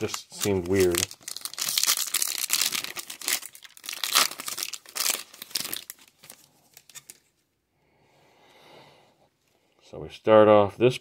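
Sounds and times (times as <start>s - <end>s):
wrapper tearing and crinkling: 0.0s - 7.3s.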